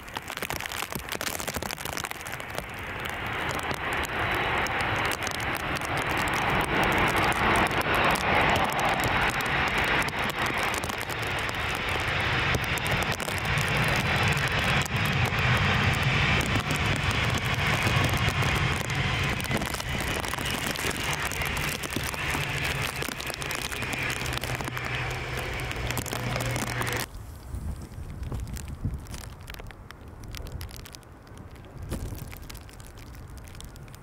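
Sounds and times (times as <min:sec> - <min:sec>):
jet engine roar: 0:00.1 - 0:27.1.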